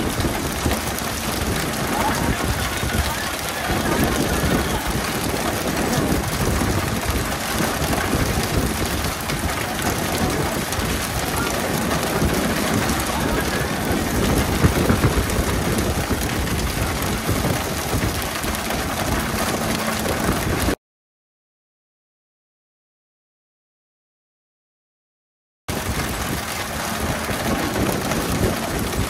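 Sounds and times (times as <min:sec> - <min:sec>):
water sprayers hissing: 0:00.0 - 0:20.6
water splashing: 0:00.0 - 0:20.8, 0:25.7 - 0:29.0.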